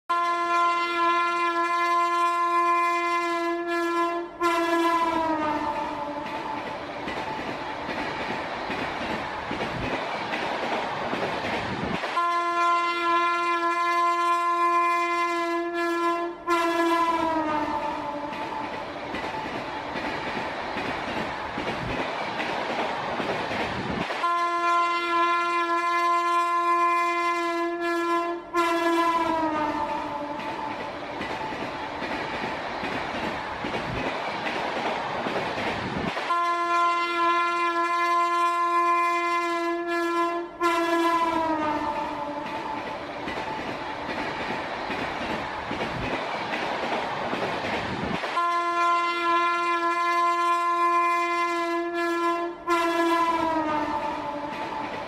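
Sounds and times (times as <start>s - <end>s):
train horn blasts: 0.1s - 6.4s, 12.1s - 18.7s, 24.2s - 30.5s, 36.3s - 42.6s, 48.4s - 54.8s
train rushing past: 0.6s - 55.0s.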